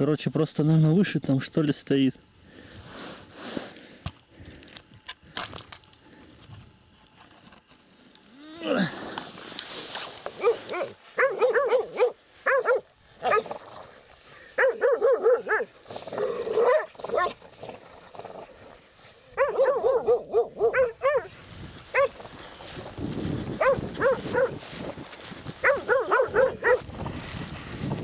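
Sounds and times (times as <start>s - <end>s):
dog barking in bursts: 10.4s - 13.6s, 14.6s - 17.4s, 19.3s - 21.3s, 21.9s - 22.2s, 23.6s - 24.6s, 25.6s - 26.9s.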